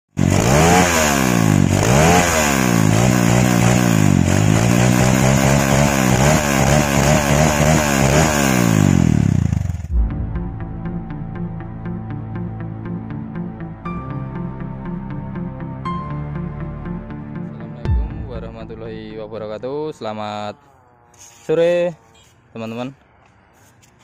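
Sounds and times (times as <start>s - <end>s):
motorcycle engine revving: 0.1s - 12.2s
intro music: 9.6s - 21.1s.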